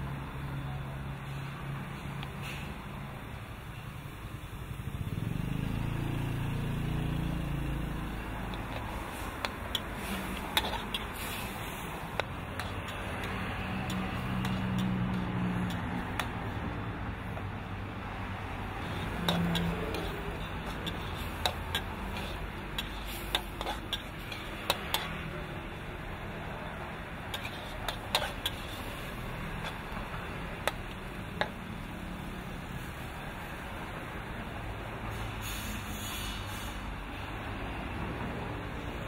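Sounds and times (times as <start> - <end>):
spatula scraping a steel wok: 7.0 - 31.9.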